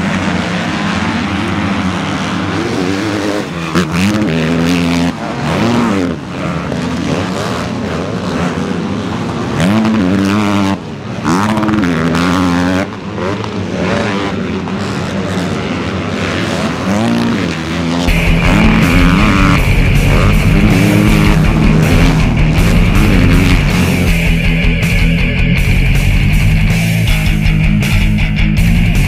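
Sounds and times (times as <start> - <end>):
motocross bike engines revving: 0.0 - 29.0
rock music: 18.1 - 29.0.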